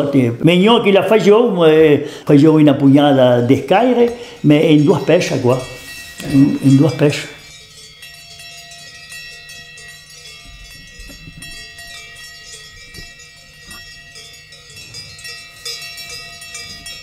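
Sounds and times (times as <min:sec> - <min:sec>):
cowbells clanking: 0:00.0 - 0:17.0.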